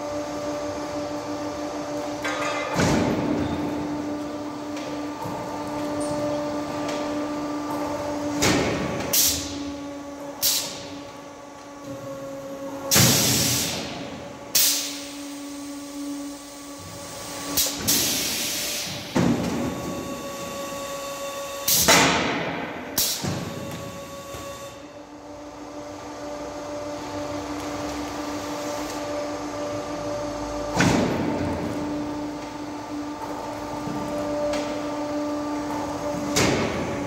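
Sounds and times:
machine motor hum: 0.0s - 37.0s
pneumatic air hisses and knocks: 12.9s - 15.1s, 16.8s - 19.9s.

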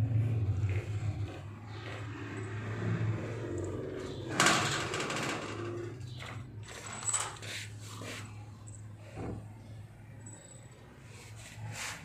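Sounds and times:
cat rubbing against bristle brush: 7.4s - 8.5s, 11.1s - 12.0s.

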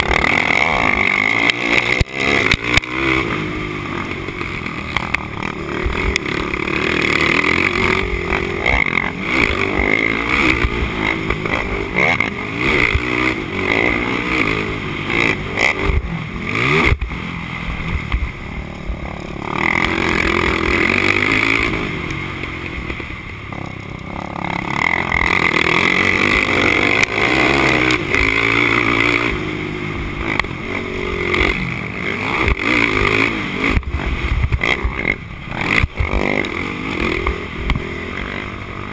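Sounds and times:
machine rattling over rough ground: 0.0s - 15.9s
quad engine revving: 0.0s - 38.9s.

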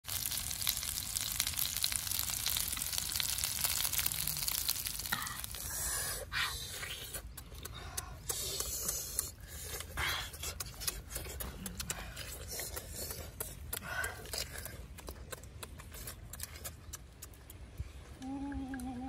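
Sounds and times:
food sizzling on metal sheet: 0.0s - 5.8s
eating noises: 0.1s - 19.0s.

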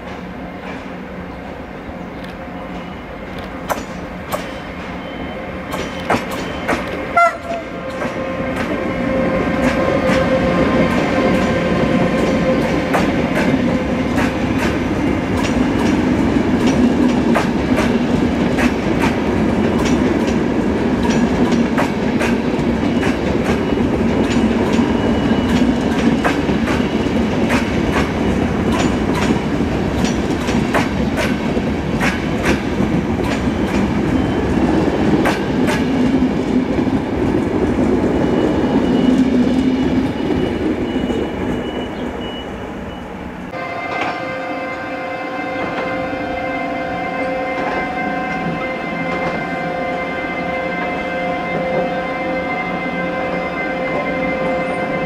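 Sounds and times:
train rolling rumble: 0.0s - 55.0s
train wheels clacking on rail joints: 2.2s - 42.0s.

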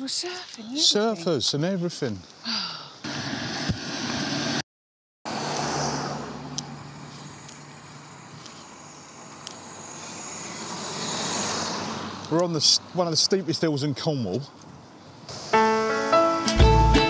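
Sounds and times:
car engine approaching: 5.3s - 13.6s
tyre noise on road: 5.3s - 15.5s.

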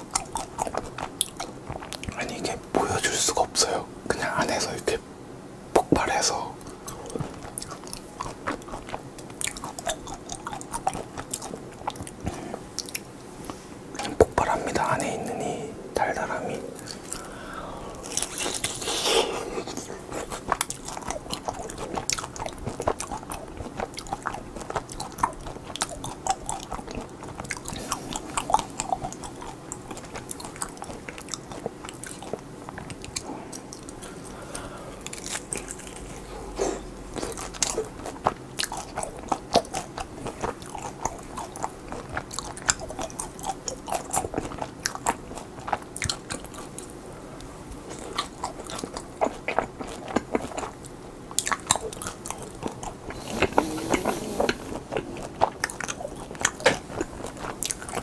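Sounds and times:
crisp crust crunching: 17.9s - 46.9s
wet mouth clicks: 51.4s - 56.8s.

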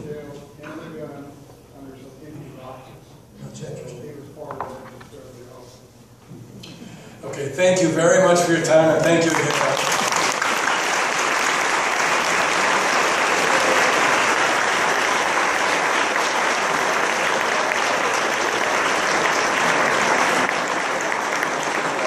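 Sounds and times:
audience applauding: 8.9s - 22.0s.

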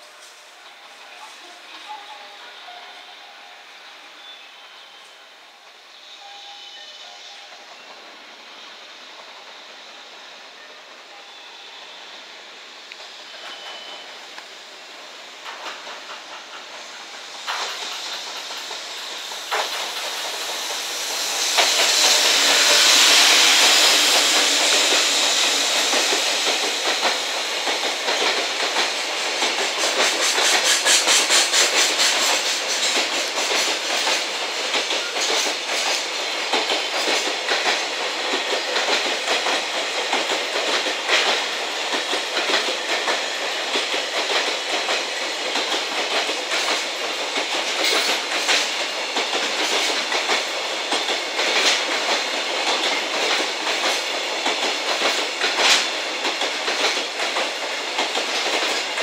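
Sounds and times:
electric locomotive rushing hiss: 0.0s - 59.0s
train wheels clacking over rail joints: 15.3s - 59.0s.

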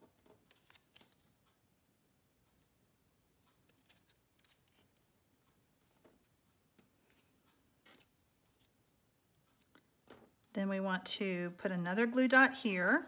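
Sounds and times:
paper clicks and rustles: 0.0s - 1.6s, 3.4s - 5.1s, 5.8s - 10.2s.

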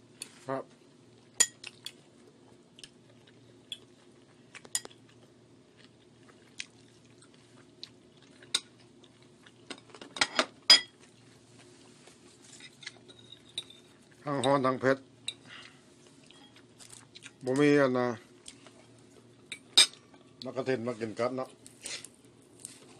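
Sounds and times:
chewing crispy food: 1.1s - 10.2s, 10.9s - 13.1s, 15.4s - 20.6s, 21.6s - 22.9s.

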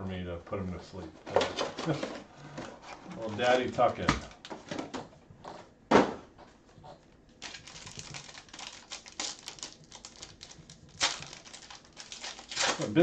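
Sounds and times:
trading cards shuffling: 7.3s - 13.0s.

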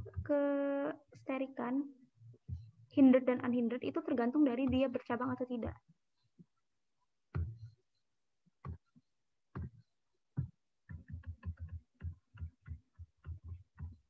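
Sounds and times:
stylus tapping on drawing tablet: 4.5s - 5.4s, 10.4s - 14.0s.

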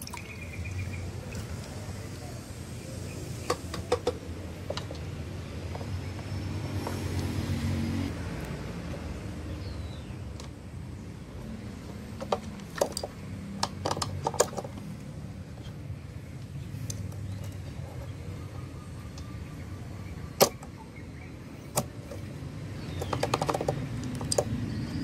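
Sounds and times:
plastic parts clicking and knocking: 3.5s - 5.1s, 12.2s - 14.9s, 22.9s - 24.6s.

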